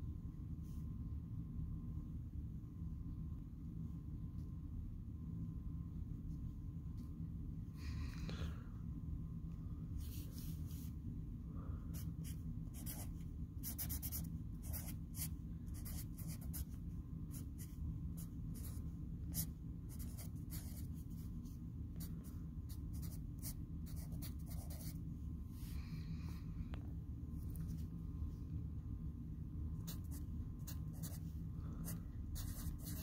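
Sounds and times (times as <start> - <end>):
steady low hum: 0.0 - 33.0
marker scratching on paper: 12.0 - 16.7, 17.3 - 21.3, 22.7 - 25.0, 29.9 - 31.2, 31.8 - 33.0.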